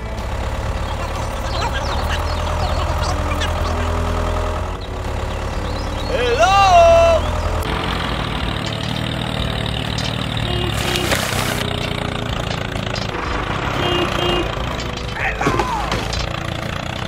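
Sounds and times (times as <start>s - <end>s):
engine idling: 0.0s - 17.0s
brief scraping hiss: 10.7s - 11.7s.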